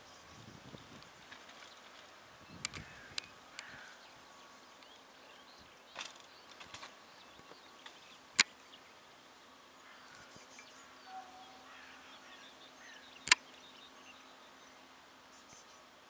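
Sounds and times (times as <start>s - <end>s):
sharp loud click: 13.2s - 13.4s.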